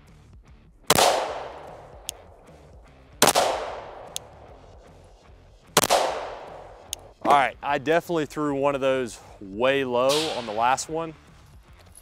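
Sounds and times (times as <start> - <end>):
pistol shots: 0.9 - 2.6, 3.2 - 4.9, 5.7 - 7.2, 10.1 - 10.8.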